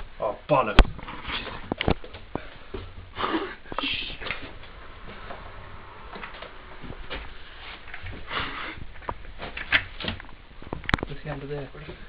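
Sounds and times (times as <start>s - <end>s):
short breath: 8.2s - 8.8s.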